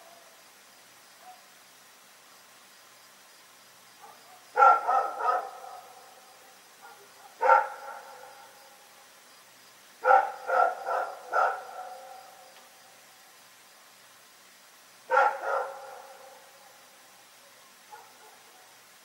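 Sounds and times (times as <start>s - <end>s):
dog barking: 1.2s - 1.5s, 4.0s - 6.0s, 6.8s - 8.6s, 10.0s - 12.5s, 15.1s - 16.5s, 17.9s - 18.7s.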